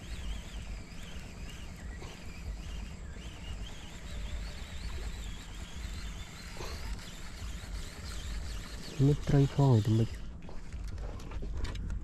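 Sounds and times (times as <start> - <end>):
high wavering chirps: 0.0 - 10.2.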